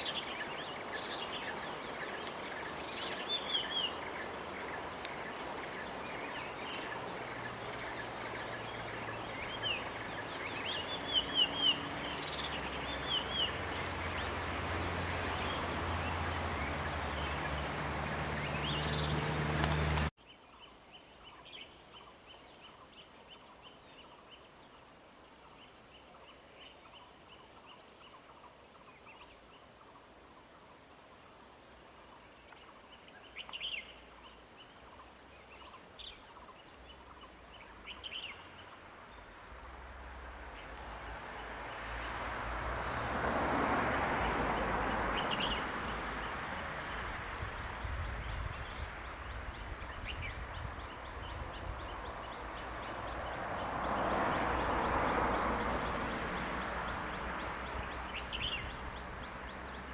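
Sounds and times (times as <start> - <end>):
birds chirping: 0.0 - 20.1, 48.1 - 59.9
insects droning: 0.0 - 59.9.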